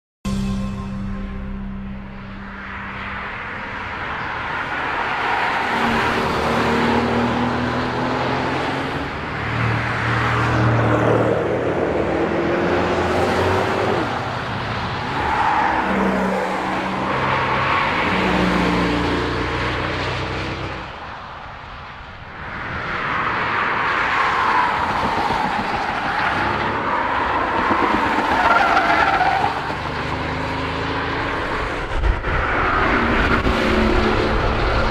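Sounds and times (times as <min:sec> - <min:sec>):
car engine revving: 0:01.8 - 0:20.9, 0:26.3 - 0:34.9.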